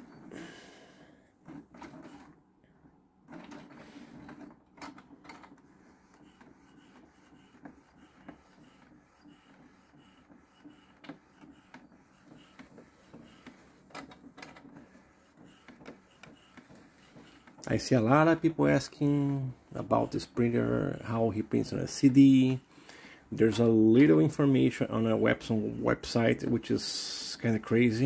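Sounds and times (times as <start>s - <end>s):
printer mechanism whirring: 1.4s - 22.7s.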